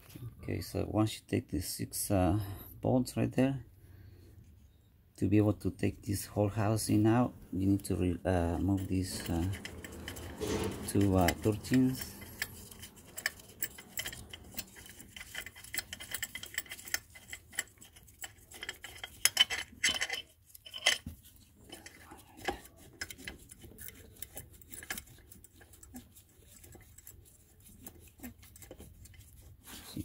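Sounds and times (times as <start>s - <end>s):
hand tools clinking on metal: 8.8s - 21.0s
metal clanks: 8.8s - 25.2s.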